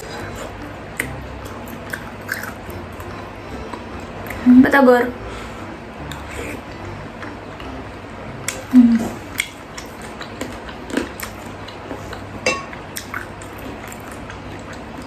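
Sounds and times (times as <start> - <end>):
chewing and mouth noises: 0.0 - 4.4, 8.4 - 15.0.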